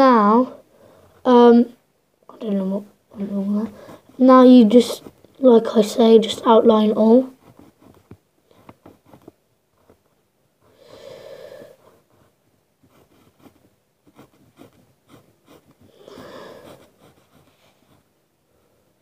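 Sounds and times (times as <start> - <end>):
pencil scratching on paper: 7.3 - 9.4, 11.8 - 18.1
long breaths near microphone: 10.6 - 12.1, 15.8 - 17.0.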